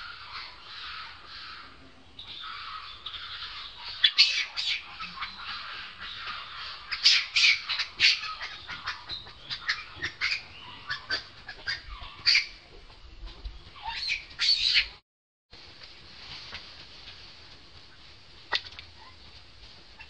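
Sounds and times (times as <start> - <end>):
macaque squealing: 13.8 - 14.9.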